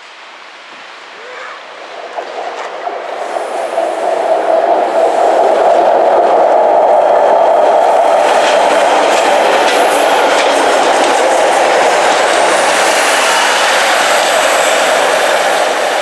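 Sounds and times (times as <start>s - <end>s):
diesel train rumbling past: 1.2s - 16.0s
wheels clicking over rail joints: 2.0s - 16.0s.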